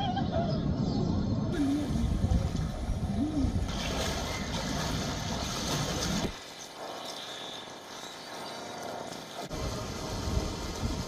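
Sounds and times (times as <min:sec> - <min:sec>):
floodwater splashing: 0:03.6 - 0:10.9.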